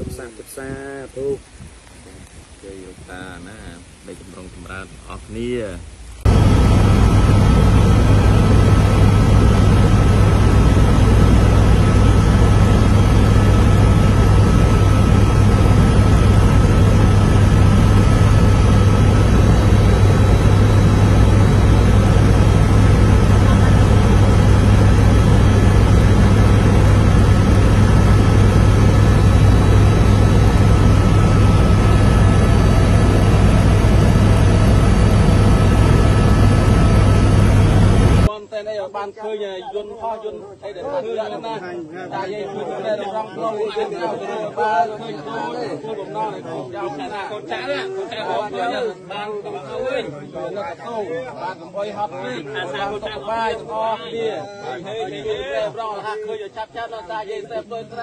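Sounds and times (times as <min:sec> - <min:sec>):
thin constant whine: 0:00.0 - 0:58.0
helicopter engine and rotor drone: 0:06.3 - 0:38.3.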